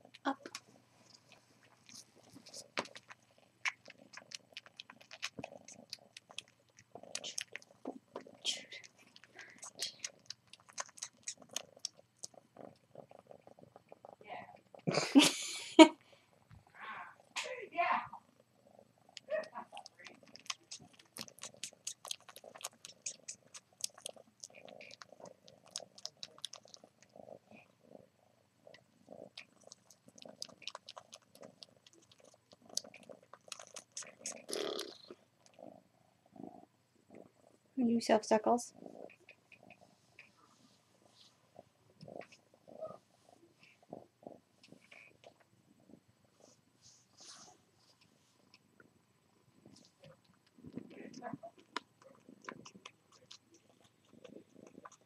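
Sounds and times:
kitten wet sucking clicks: 0.1s - 14.8s, 19.1s - 27.3s, 28.7s - 35.7s, 49.7s - 55.0s.

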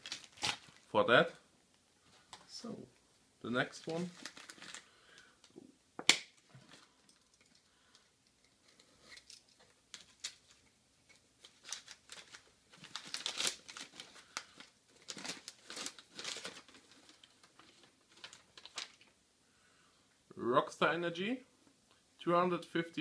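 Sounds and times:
newspaper crinkling: 0.0s - 0.9s, 3.9s - 5.0s, 8.6s - 19.2s.

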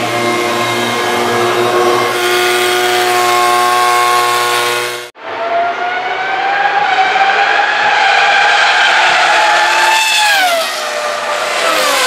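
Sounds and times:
racing car engine running: 0.0s - 5.1s
racing cars accelerating: 0.0s - 12.0s.

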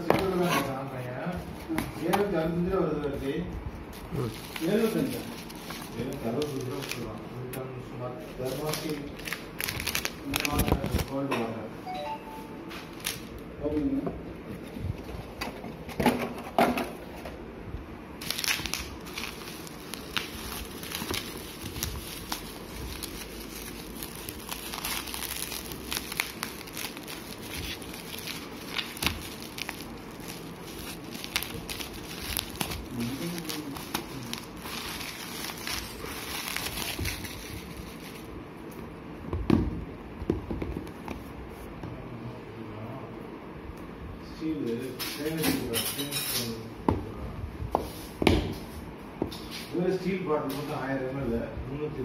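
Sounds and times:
bubble wrap rustling and clicking: 4.0s - 7.6s, 8.4s - 11.3s, 18.2s - 38.3s.

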